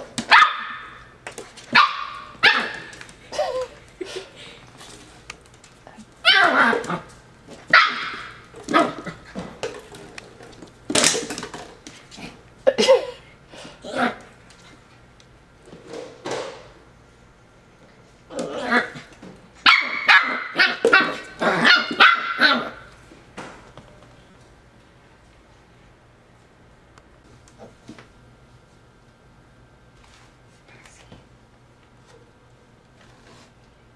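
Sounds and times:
puppy barking: 0:00.3 - 0:01.0, 0:01.7 - 0:02.9, 0:07.7 - 0:09.1, 0:19.6 - 0:22.9.

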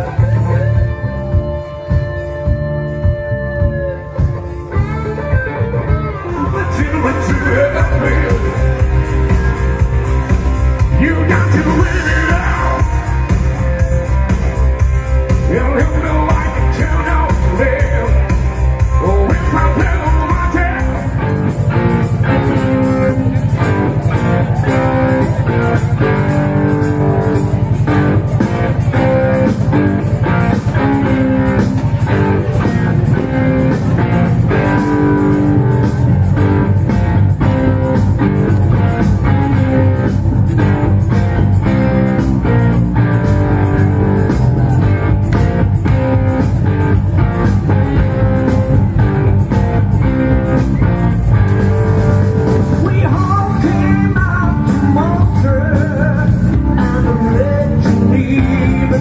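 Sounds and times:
live rock music: 0:00.0 - 0:59.0
person singing: 0:10.8 - 0:13.4, 0:15.3 - 0:21.2, 0:52.8 - 0:59.0.

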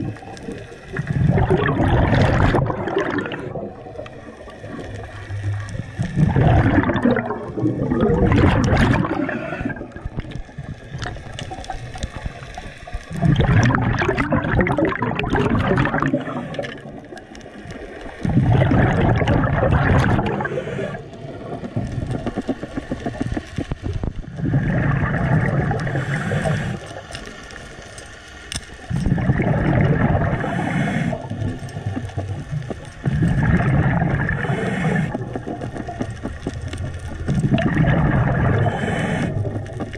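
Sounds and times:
exhaled bubbles gurgling: 0:00.0 - 0:28.0, 0:28.6 - 0:39.9
diver breathing through regulator: 0:20.2 - 0:21.5, 0:25.8 - 0:27.1, 0:30.0 - 0:31.6, 0:33.1 - 0:35.6, 0:38.3 - 0:39.6.

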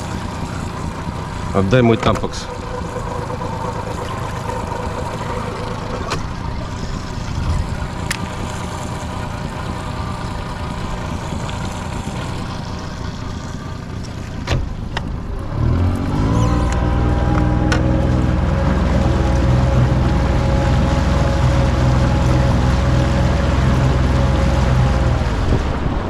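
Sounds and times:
outboard motor running: 0:00.0 - 0:26.0.

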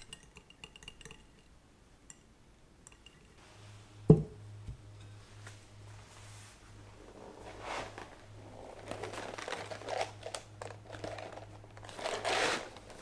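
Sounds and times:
whisk clicking against glass bowl: 0:00.0 - 0:01.5
steady low hum: 0:00.0 - 0:13.0.

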